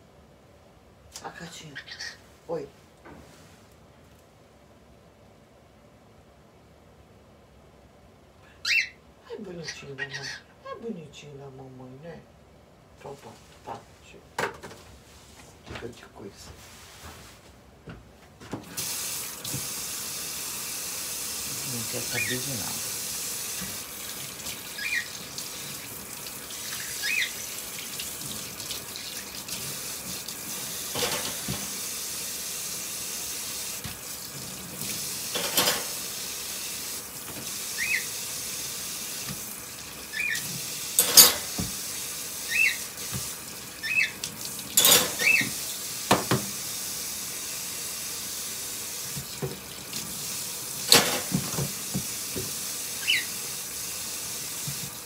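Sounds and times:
cockatiel chirps: 8.6 - 9.0, 26.8 - 27.4, 37.8 - 38.1, 40.1 - 40.4, 42.5 - 42.8, 43.8 - 44.2, 53.0 - 53.3
tap running into sink: 18.5 - 19.8, 29.5 - 31.8, 40.4 - 41.9, 43.0 - 43.4, 44.2 - 46.6, 49.1 - 50.1, 50.8 - 52.6, 54.6 - 55.0
dish clinks and knocks: 44.8 - 45.4.

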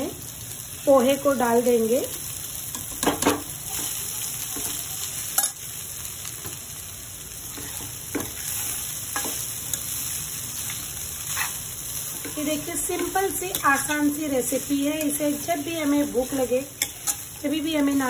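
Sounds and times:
food sizzling in a pan: 0.0 - 18.0
spatula scraping and knocking pan: 7.5 - 9.5, 11.3 - 14.2.

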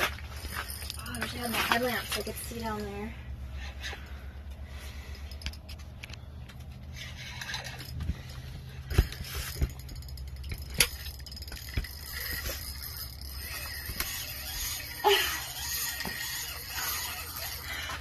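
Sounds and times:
steady low hum: 0.0 - 18.0
fishing tackle clinking: 7.0 - 18.0.

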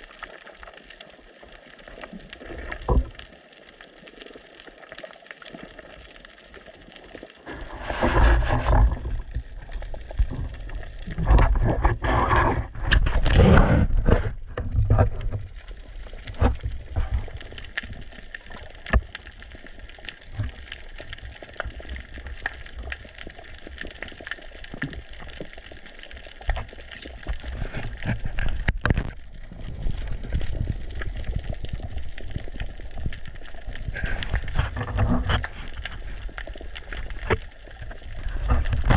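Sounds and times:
underwater rumbling water surges: 7.4 - 19.0.

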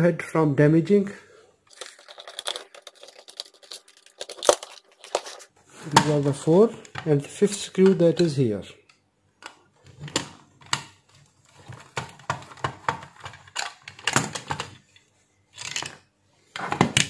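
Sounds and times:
plastic scrape: 1.7 - 6.1.

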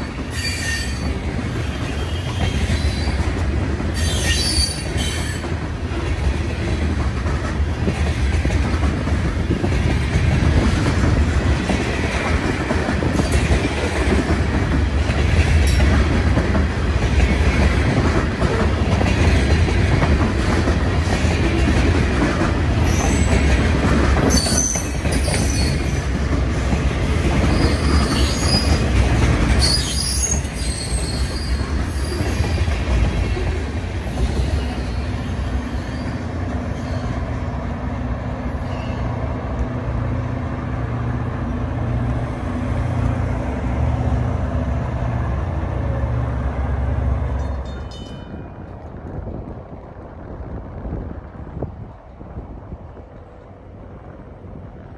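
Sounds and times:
steel wheels rumbling on rail: 0.0 - 54.9
high-pitched wheel squeals: 0.3 - 1.1, 4.0 - 5.4, 29.6 - 32.4.

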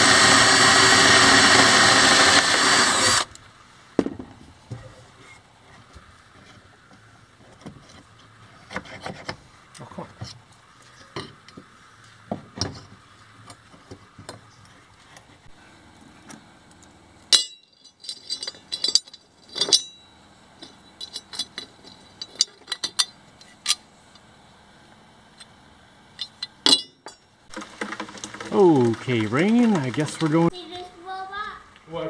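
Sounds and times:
metal parts clinking: 17.4 - 23.8, 26.2 - 27.2.

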